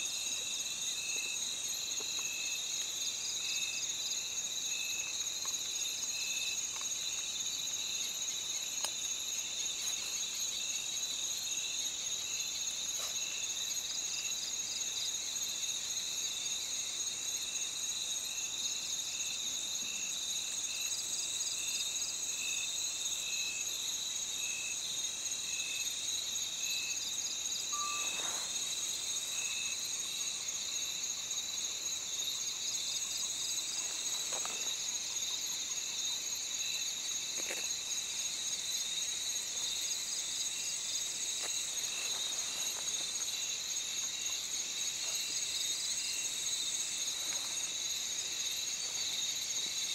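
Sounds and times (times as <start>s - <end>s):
high-pitched insect trilling: 25.8s - 49.9s
low short insect chirp: 27.6s - 31.2s.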